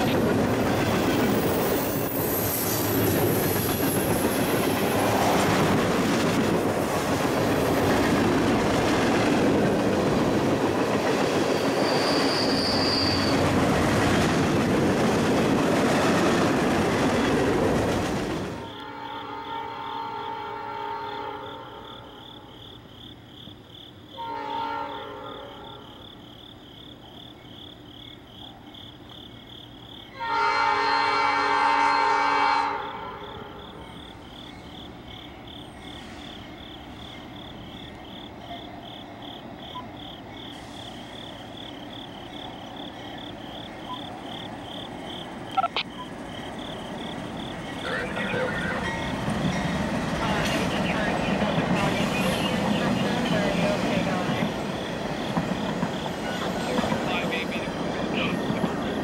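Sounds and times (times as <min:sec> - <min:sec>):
locomotive horn blasts: 0:18.7 - 0:21.8, 0:24.2 - 0:25.8, 0:30.2 - 0:33.2.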